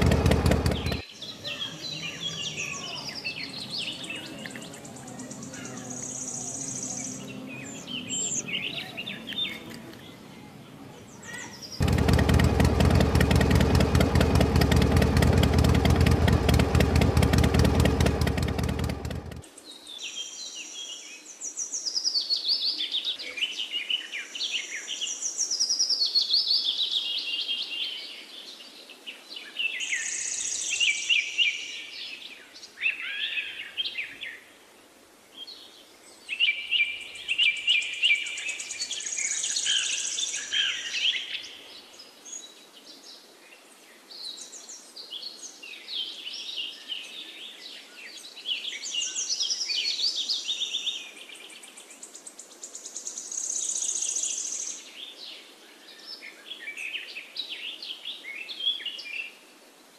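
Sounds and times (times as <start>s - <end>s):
small birds chirping and trilling: 0.0s - 34.4s.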